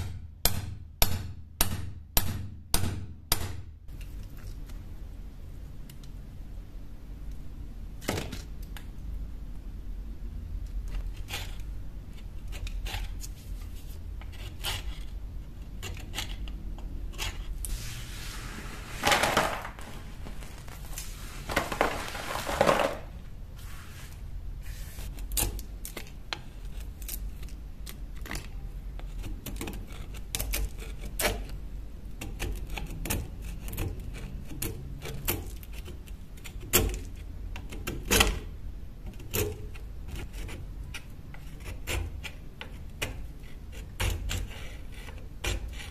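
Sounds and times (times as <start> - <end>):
chisel scraping metal: 10.9 - 17.8, 39.1 - 45.9.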